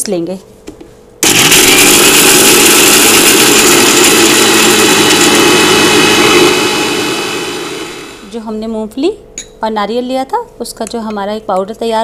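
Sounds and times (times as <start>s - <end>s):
mixer grinder motor whirring: 1.2s - 8.3s.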